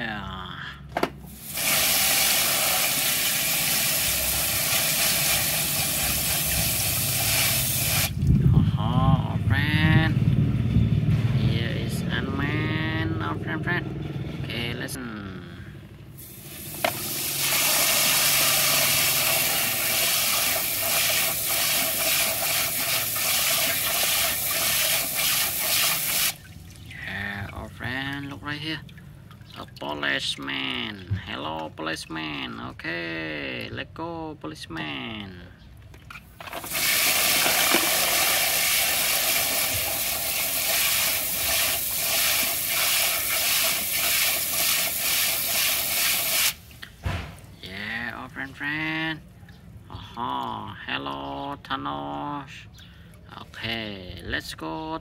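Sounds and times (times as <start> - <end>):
hose nozzle spraying water: 1.3 - 8.2, 16.2 - 26.5, 36.4 - 46.8.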